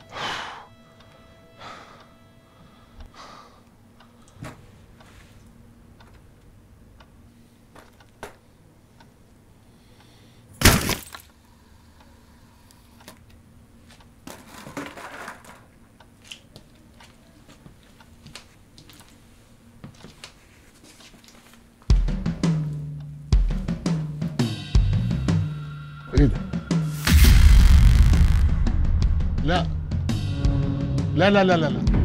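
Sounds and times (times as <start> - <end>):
loud breaking crash: 10.6 - 11.2, 27.0 - 29.3
heavy deep hit: 24.8 - 31.2.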